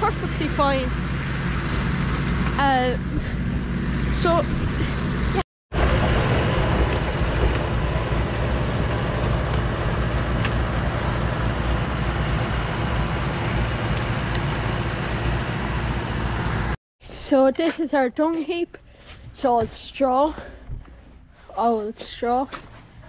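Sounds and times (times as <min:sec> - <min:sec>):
tractor engine running: 0:00.0 - 0:16.8
dense rushing noise: 0:04.6 - 0:16.8.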